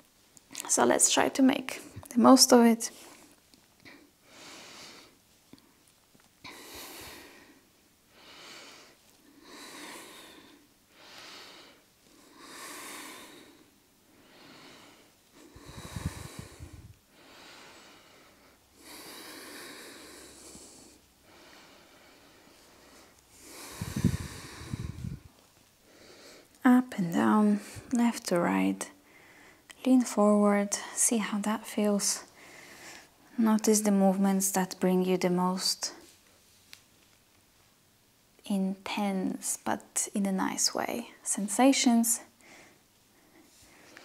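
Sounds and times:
woman breathing: 3.0s - 5.2s, 6.4s - 26.6s, 27.4s - 28.0s, 28.9s - 29.7s, 32.1s - 33.4s, 42.3s - 44.0s
microphone rubbing on clothing: 23.7s - 25.4s.

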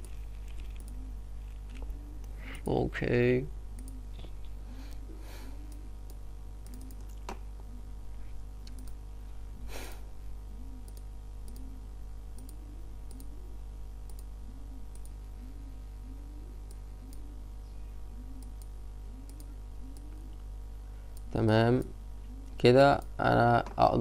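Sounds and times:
computer mouse clicking: 0.0s - 1.0s, 3.7s - 4.0s, 5.7s - 7.4s, 8.6s - 9.0s, 10.8s - 11.7s, 12.3s - 13.3s, 14.0s - 15.2s, 18.4s - 20.5s
low electrical hum: 0.0s - 24.0s.

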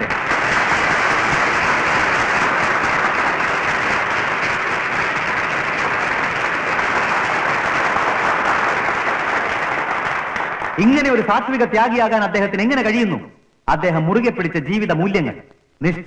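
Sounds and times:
large crowd applauding: 0.0s - 11.8s.

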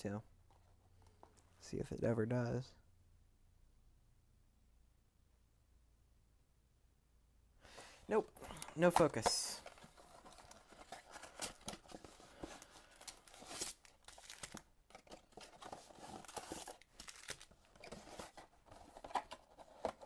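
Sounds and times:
wrapped card packs rustling: 7.7s - 20.0s.

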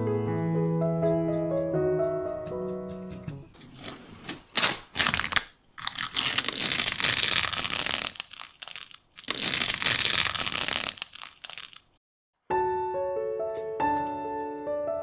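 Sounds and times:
masking tape peeling: 3.8s - 11.9s.

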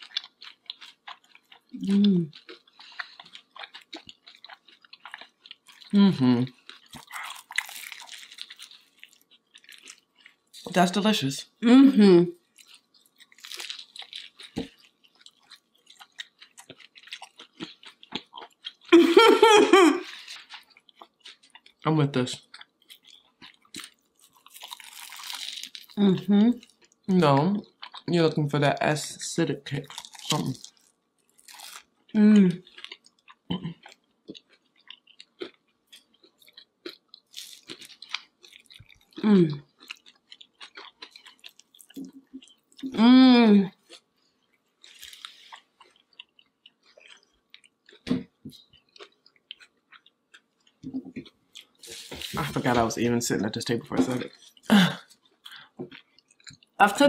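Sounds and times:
people chewing crispy food: 0.0s - 11.1s, 12.1s - 56.8s
woman's voice: 1.8s - 2.3s, 6.0s - 6.5s, 10.7s - 12.3s, 26.0s - 30.6s, 32.2s - 32.6s, 39.2s - 39.6s, 42.9s - 43.7s, 52.3s - 52.9s, 56.8s - 57.0s.

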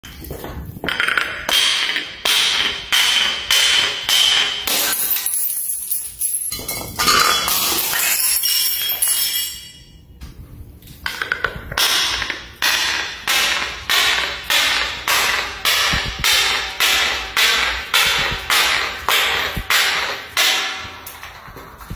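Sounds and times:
glass breaking: 1.5s - 10.0s
glass jars clunking down stairs: 4.5s - 10.0s.

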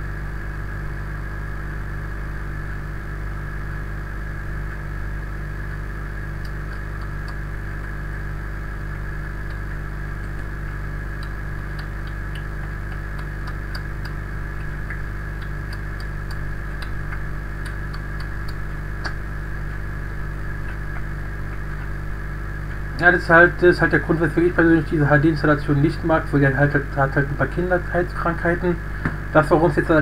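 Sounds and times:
mains hum: 0.0s - 30.0s
microphone line hiss: 0.0s - 30.0s.

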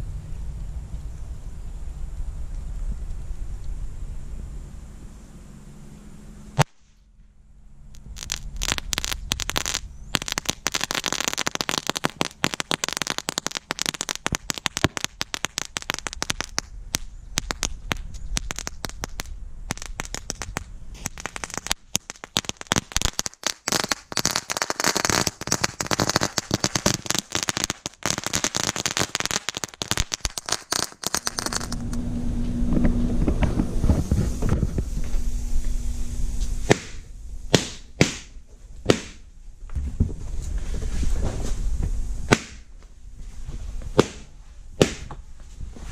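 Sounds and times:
low steady rumble: 0.0s - 23.4s, 25.3s - 45.9s
fuse crackling: 7.9s - 39.2s.

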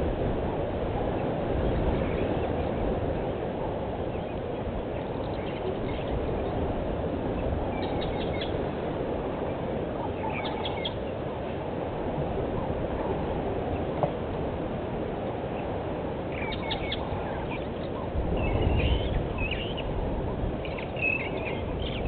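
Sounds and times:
low outdoor rush: 0.0s - 22.0s
birds chirping: 1.1s - 8.8s, 9.4s - 11.7s, 15.2s - 22.0s.

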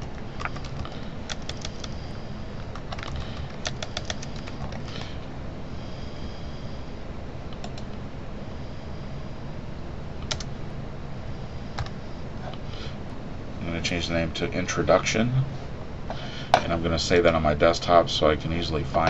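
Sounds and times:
computer keyboard keystrokes: 0.1s - 2.0s, 2.7s - 5.1s, 10.2s - 10.5s.

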